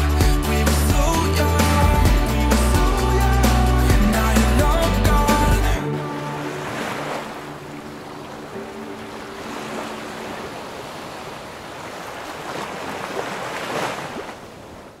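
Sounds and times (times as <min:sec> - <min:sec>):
sea waves washing: 0:02.6 - 0:15.0
faint steady musical tones: 0:05.7 - 0:10.9
wind: 0:05.8 - 0:15.0.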